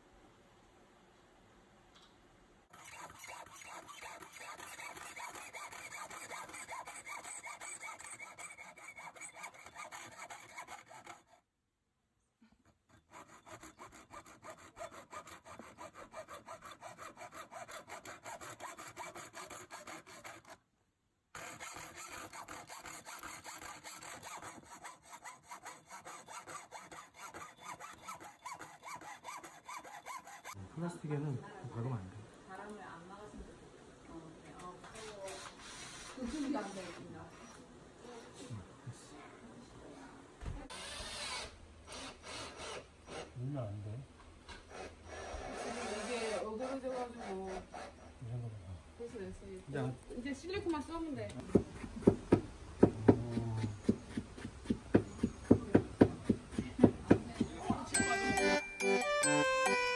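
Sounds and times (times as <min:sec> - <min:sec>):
saw cutting through aluminium: 0:02.7 - 0:11.4, 0:12.9 - 0:20.6, 0:21.4 - 0:30.6, 0:44.8 - 0:47.5, 0:56.6 - 0:58.6.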